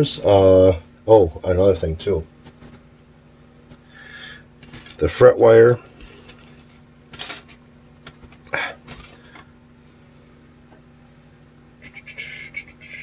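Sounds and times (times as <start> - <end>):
faint steady hum: 0.0 - 13.0
metal wire clattering on countertop: 4.6 - 5.0, 6.0 - 9.2.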